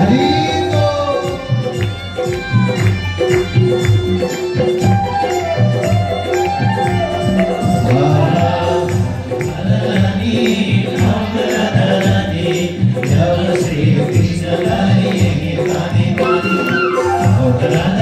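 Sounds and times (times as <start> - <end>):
devotional music with steady beat: 0.0 - 18.0
jingling percussion: 0.0 - 18.0
voices singing: 7.8 - 18.0.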